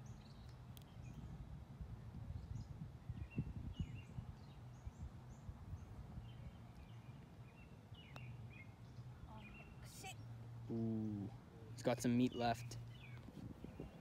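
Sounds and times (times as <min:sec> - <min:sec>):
wind rumble on microphone: 0:00.0 - 0:07.6, 0:12.9 - 0:14.0
songbirds chirping: 0:00.0 - 0:14.0.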